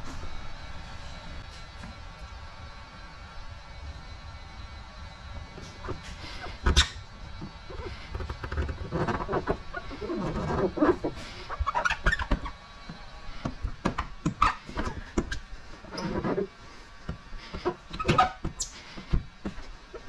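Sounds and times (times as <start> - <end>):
squeegee scraping and squeaking: 5.6 - 20.0.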